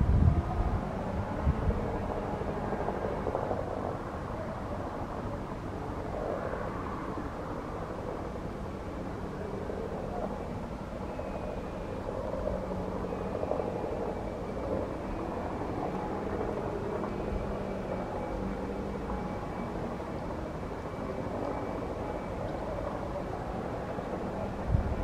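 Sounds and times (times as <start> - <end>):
helicopter hovering: 0.0 - 25.0
high turbine whine: 0.0 - 25.0.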